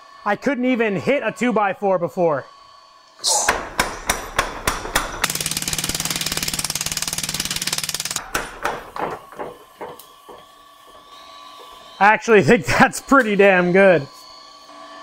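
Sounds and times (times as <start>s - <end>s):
power hammer blows on wood: 3.3s - 11.1s
wood splintering: 3.5s - 10.0s.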